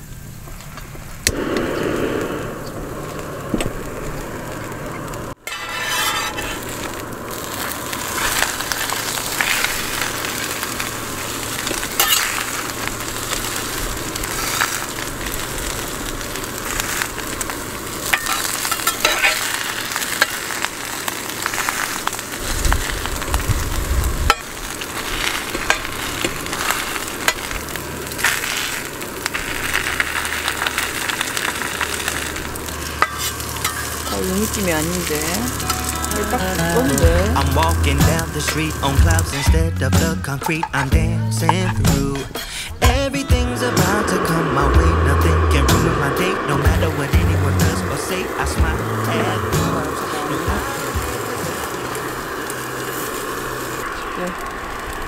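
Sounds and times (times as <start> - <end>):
food sizzling in a pan: 1.3 - 55.0
metal spatula scraping a pan: 5.4 - 6.9, 12.0 - 12.5, 18.1 - 20.6, 33.0 - 34.2.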